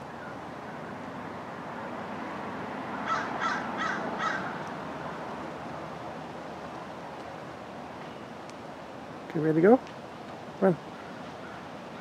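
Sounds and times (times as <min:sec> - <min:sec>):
crow cawing: 0:03.0 - 0:04.6, 0:10.9 - 0:11.7.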